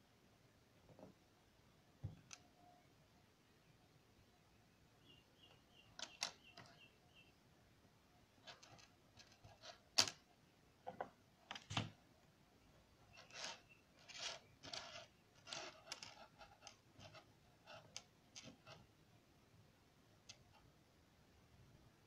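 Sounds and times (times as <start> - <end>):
components handled on wooden table: 10.9 - 12.0, 13.2 - 18.8.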